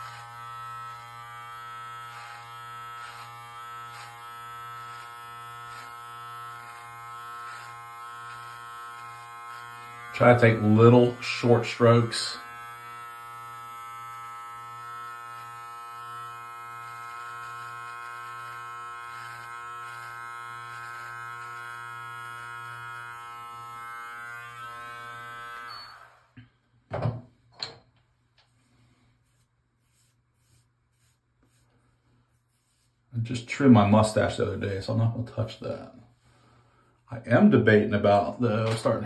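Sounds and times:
beard trimmer buzzing: 0.0 - 26.4.

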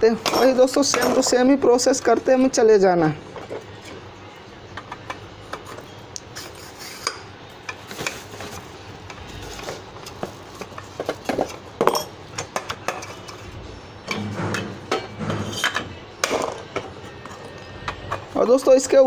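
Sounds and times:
metal pump parts clinking: 9.5 - 13.4.

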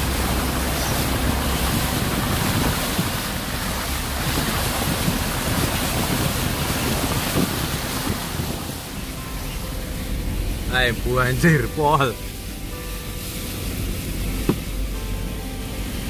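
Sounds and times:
wind buffeting microphone: 0.0 - 11.4
tyre splashing through floodwater: 0.0 - 16.0.

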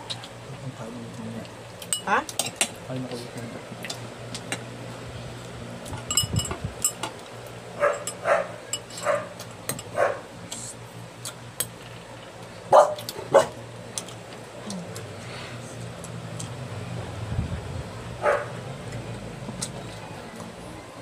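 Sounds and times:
cutlery clinking against a bowl: 6.0 - 7.2, 7.8 - 10.0
dog barking: 7.8 - 9.4, 10.0 - 10.3, 12.7 - 13.6, 18.2 - 18.6.

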